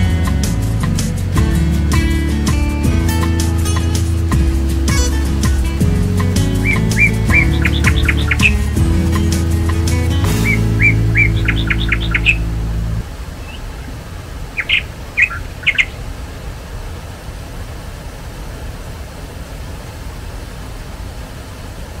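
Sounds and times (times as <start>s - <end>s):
background music: 0.0s - 13.0s
bird chirping: 4.8s - 16.0s.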